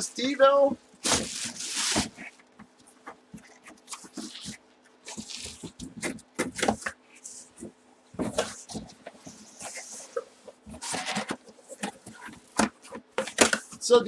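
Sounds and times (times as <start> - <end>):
plastic wrapping rustling: 0.6 - 14.0
cardboard box handled: 1.0 - 7.0.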